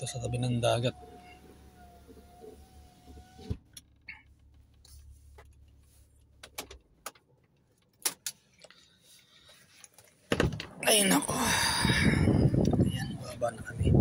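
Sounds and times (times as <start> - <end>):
power window motor whining: 0.2 - 3.7.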